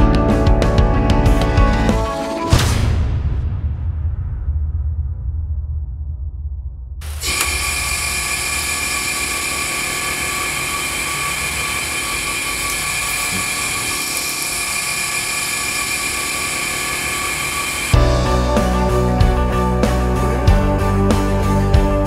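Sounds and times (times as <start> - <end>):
music with heavy beat: 0.0 - 2.8, 18.0 - 22.0
washing machine whine: 7.0 - 18.0.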